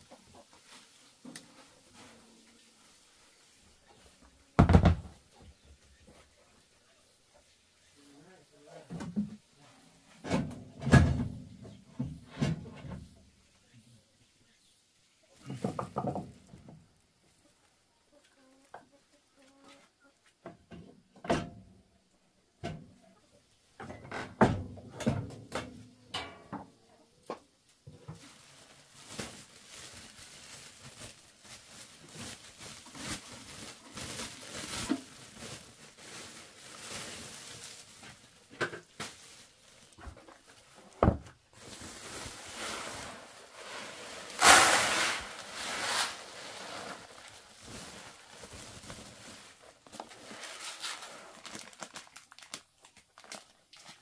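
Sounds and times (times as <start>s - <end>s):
sack rustling: 28.2s - 40.0s, 41.5s - 52.6s
ground corn pouring into basin: 41.7s - 48.3s.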